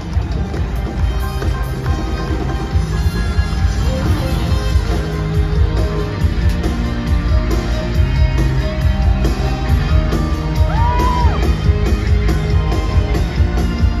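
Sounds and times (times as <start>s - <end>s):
upbeat band music: 0.0s - 14.0s
high whoop: 10.6s - 11.5s.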